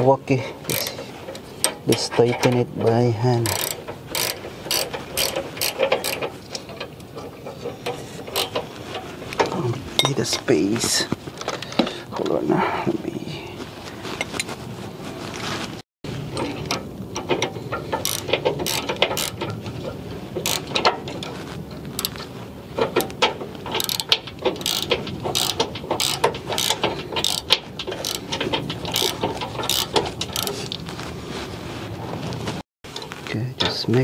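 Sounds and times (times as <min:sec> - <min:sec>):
ratcheting wrench clicking: 0:00.6 - 0:01.8, 0:03.4 - 0:06.8, 0:07.8 - 0:08.6, 0:17.4 - 0:19.5, 0:20.4 - 0:21.3, 0:22.0 - 0:22.2, 0:23.0 - 0:30.7.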